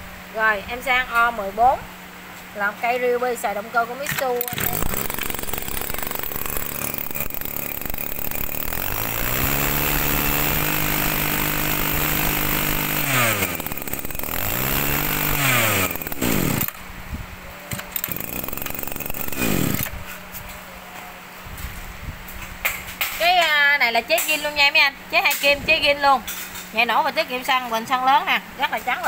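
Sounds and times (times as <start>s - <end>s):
brush cutter engine revving and idling: 4.0s - 16.9s, 17.7s - 20.2s.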